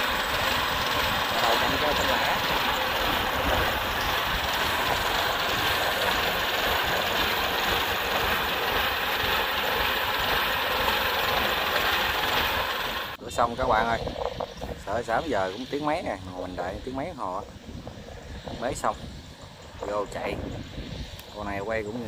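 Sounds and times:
combine harvester running: 0:00.0 - 0:13.2.

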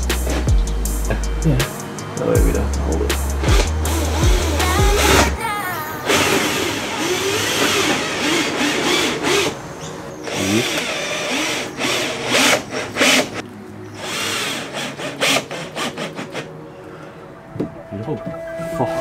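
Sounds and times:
cordless drill motor spinning: 0:06.0 - 0:13.4, 0:14.0 - 0:16.5.

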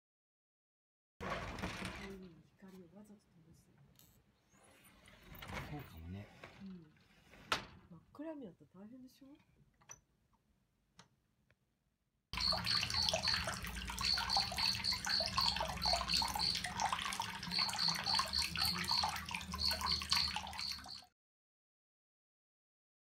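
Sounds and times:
water splashing and gurgling: 0:12.4 - 0:21.1.

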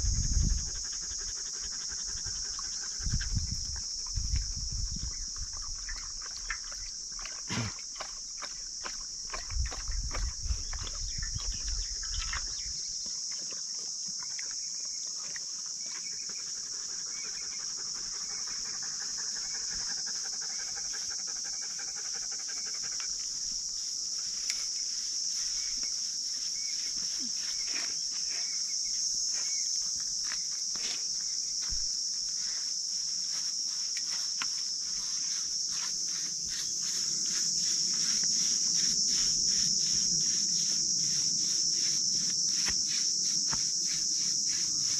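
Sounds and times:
insects droning: 0:00.0 - 0:44.9
dog panting: 0:00.3 - 0:03.3, 0:16.3 - 0:23.2.

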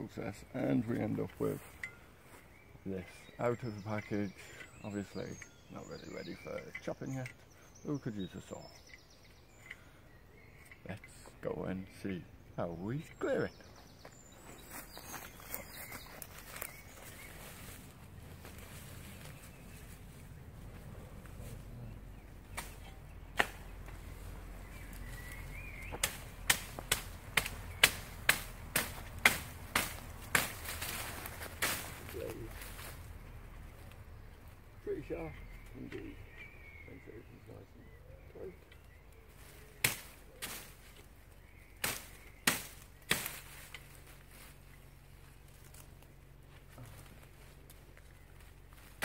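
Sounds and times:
shovel chopping undergrowth: 0:22.5 - 0:24.0, 0:24.7 - 0:32.4, 0:39.8 - 0:40.8, 0:41.8 - 0:44.1.

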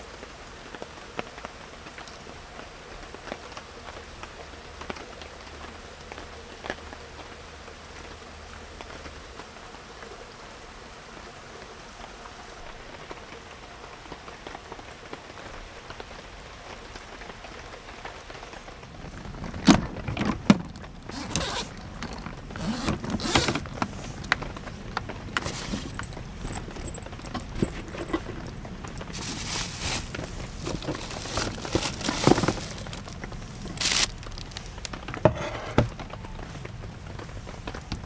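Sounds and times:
rustling and scraping: 0:19.4 - 0:36.2.

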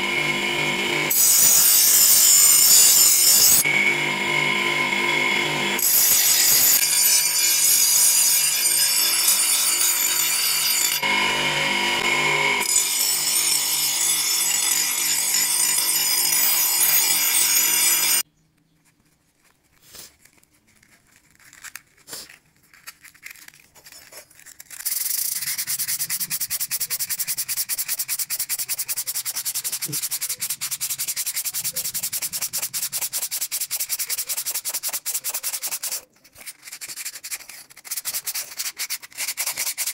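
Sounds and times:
power grinder grinding steel: 0:00.0 - 0:18.2, 0:24.7 - 0:36.1
sandpaper scratching on blade: 0:01.1 - 0:03.6, 0:19.8 - 0:39.9.

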